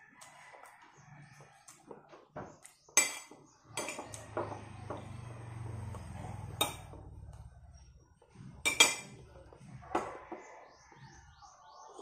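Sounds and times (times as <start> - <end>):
cutlery clinking on plate: 3.0 - 4.3, 8.7 - 9.2.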